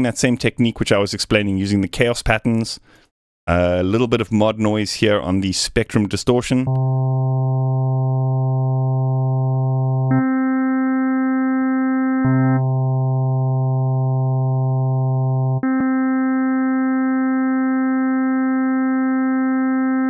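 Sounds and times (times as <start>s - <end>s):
synthesizer pad sustained notes: 6.7s - 20.0s.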